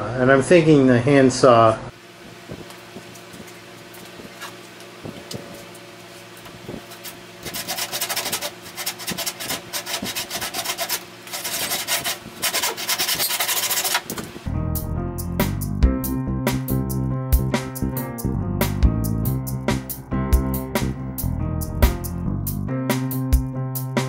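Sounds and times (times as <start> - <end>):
steady low hum: 1.8 - 15.8
handsaw strokes cutting wood: 6.9 - 14.2.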